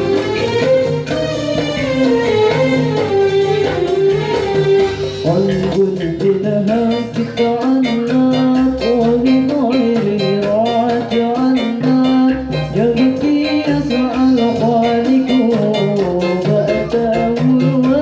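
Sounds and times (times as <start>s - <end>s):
frame drums: 0.0s - 18.0s
men singing devotional song: 5.2s - 18.0s.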